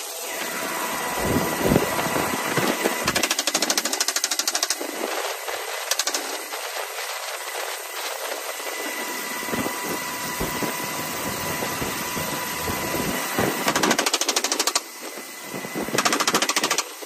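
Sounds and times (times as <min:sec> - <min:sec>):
helicopter whine and rumble: 0:00.0 - 0:17.0
machine gun bursts: 0:03.0 - 0:06.9, 0:13.5 - 0:14.9, 0:15.9 - 0:17.0.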